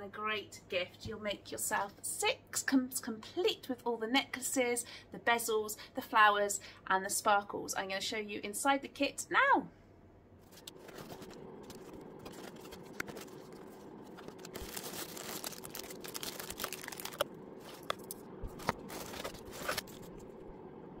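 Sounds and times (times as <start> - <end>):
paper and plastic rustling: 10.4 - 20.4.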